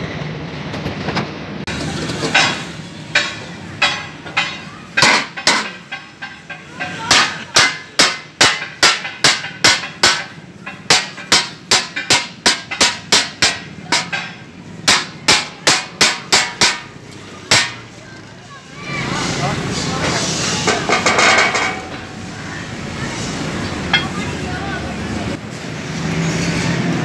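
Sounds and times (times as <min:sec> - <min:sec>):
hammer striking sheet steel: 0:01.7 - 0:17.9, 0:19.8 - 0:22.3, 0:23.9 - 0:24.4.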